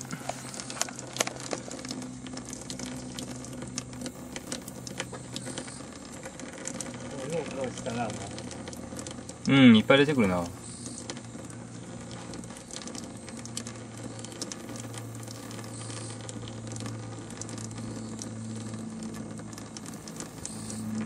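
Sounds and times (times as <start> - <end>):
faint crackling hiss: 0.0 - 21.0
low electrical hum: 0.0 - 21.0.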